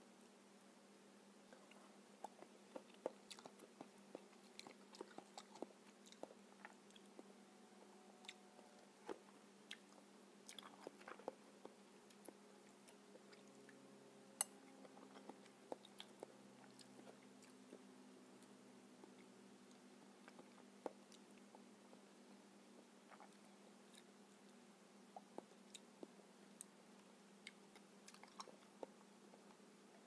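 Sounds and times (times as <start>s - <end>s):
wet chewing clicks and smacks: 1.6s - 7.3s, 9.0s - 13.8s, 14.8s - 17.8s, 27.4s - 29.5s.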